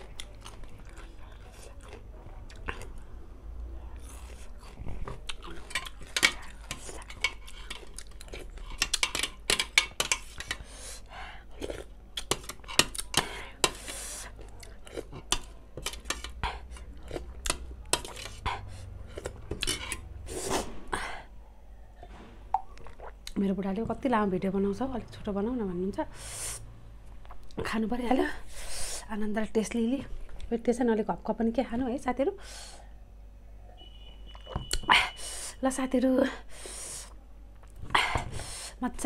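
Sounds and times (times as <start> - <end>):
chewing: 0.0 - 3.1, 3.9 - 9.4, 11.5 - 20.1, 22.6 - 23.4.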